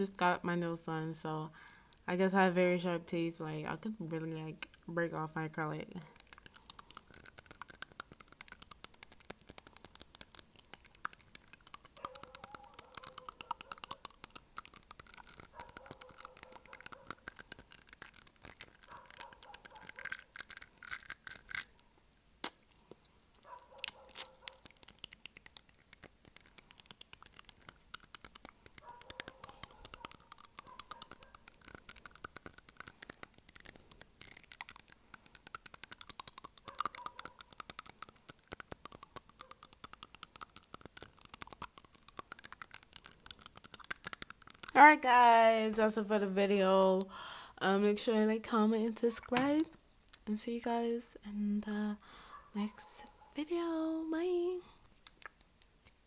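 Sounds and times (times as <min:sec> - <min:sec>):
fingernails tapping on teeth: 0:06.1 - 0:21.1, 0:23.8 - 0:44.8.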